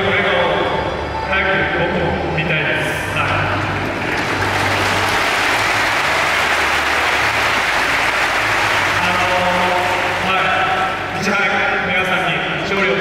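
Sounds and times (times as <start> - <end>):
audience applauding: 3.6 - 11.2.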